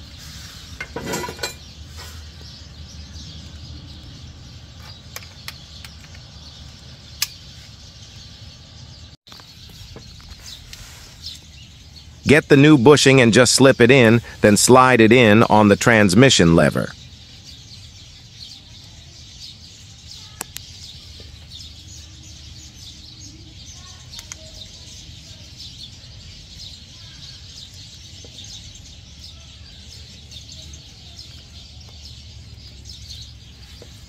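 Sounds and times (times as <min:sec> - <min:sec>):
birds chirping: 0:00.0 - 0:34.0
faint sharp clicks: 0:20.4 - 0:20.7, 0:24.1 - 0:24.4.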